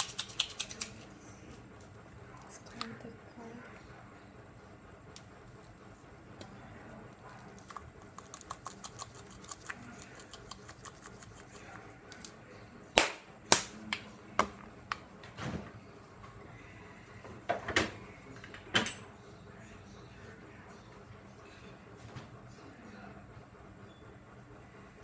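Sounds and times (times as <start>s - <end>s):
shaker clicks and knocks: 0.0s - 1.0s
shaker rapid ticking: 0.0s - 1.0s, 7.6s - 11.6s.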